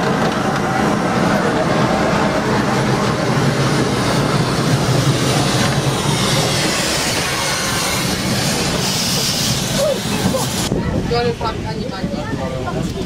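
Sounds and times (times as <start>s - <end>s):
low rumble of train wheels: 0.0s - 13.0s
steam hissing from locomotive: 2.5s - 10.8s.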